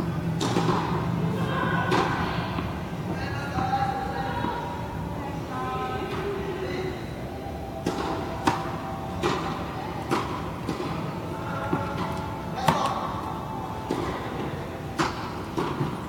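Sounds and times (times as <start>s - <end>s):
tennis balls struck by rackets: 0.4s - 1.1s, 7.8s - 11.1s, 11.7s - 13.1s, 13.8s - 16.0s.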